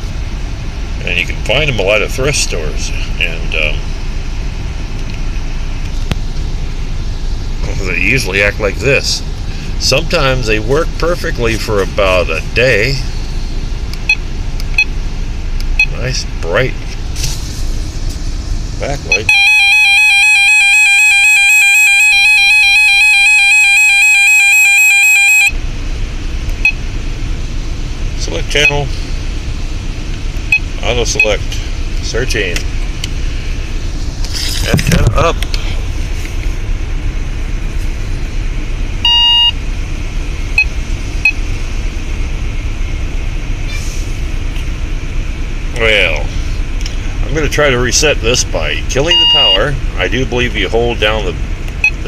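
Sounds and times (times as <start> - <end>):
electronic beep: 19.1 - 25.6, 39.1 - 39.6, 49.1 - 49.7
shrill warbling alarm tone: 19.2 - 25.6, 49.1 - 49.6.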